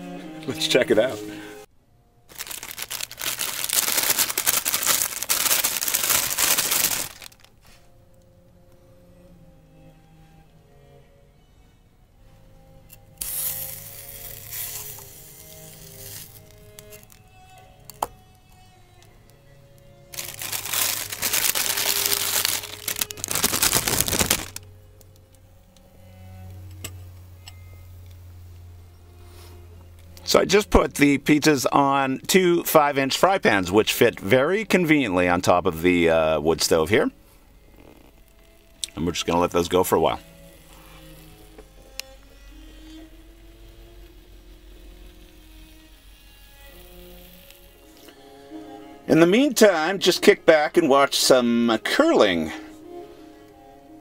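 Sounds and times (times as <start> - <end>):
plastic wrapper crinkling: 2.3 - 7.6, 13.2 - 17.2, 20.1 - 25.2, 37.7 - 42.2.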